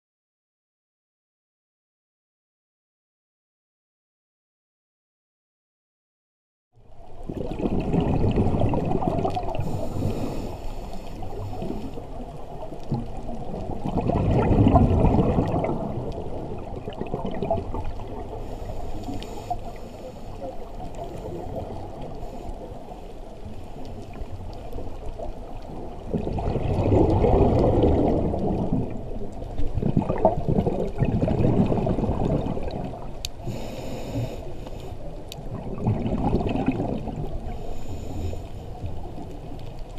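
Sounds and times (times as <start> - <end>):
muffled underwater water rush: 6.8 - 39.9
diver exhaling bubbles: 7.3 - 10.6, 12.9 - 22.1, 26.1 - 34.4, 35.5 - 37.6.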